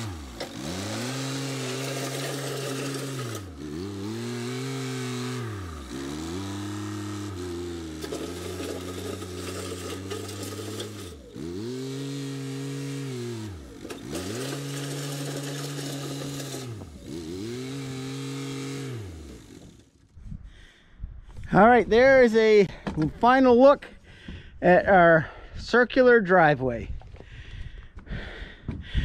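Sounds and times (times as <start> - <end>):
tractor engine revving: 0.0 - 20.1.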